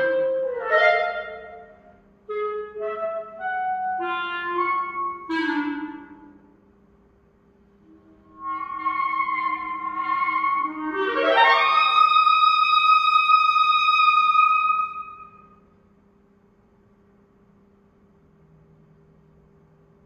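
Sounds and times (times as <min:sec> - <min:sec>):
solo clarinet: 0:00.0 - 0:06.5, 0:07.8 - 0:15.5.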